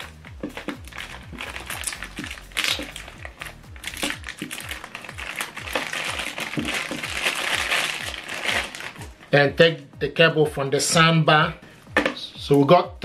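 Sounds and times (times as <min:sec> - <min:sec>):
plastic bag crinkling: 0:00.0 - 0:09.1
background music with bass beat: 0:00.0 - 0:13.0.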